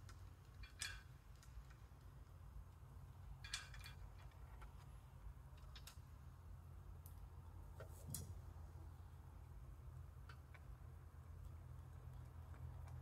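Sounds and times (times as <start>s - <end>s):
low room rumble: 0.0s - 13.0s
faint metallic clicks of nuts: 3.3s - 6.1s.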